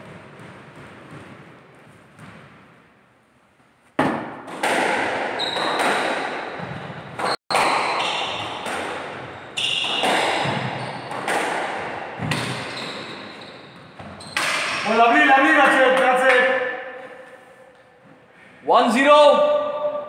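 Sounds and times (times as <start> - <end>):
squash ball hits: 0.0 - 2.9, 4.0 - 14.8
shoes squeaking on wooden floor: 5.4 - 6.0, 9.2 - 11.2, 12.2 - 14.9.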